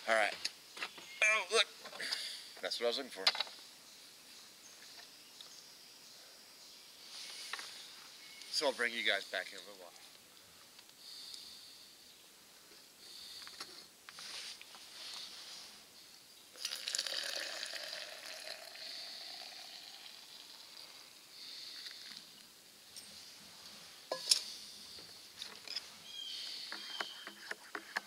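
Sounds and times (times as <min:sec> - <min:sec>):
water pouring into metal tumbler: 0:16.6 - 0:21.0.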